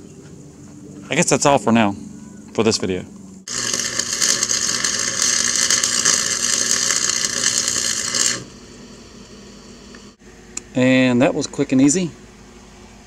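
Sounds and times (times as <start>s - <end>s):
welder crackling: 3.5s - 10.2s.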